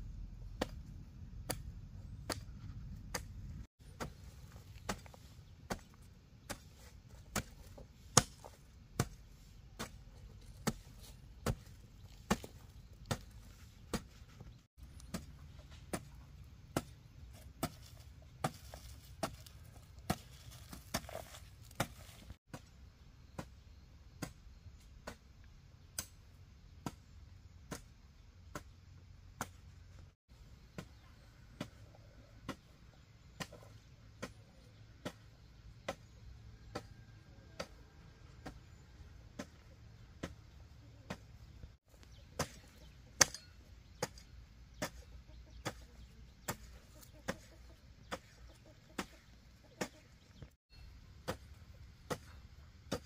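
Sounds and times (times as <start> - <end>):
hand tool striking: 43.2 - 45.0.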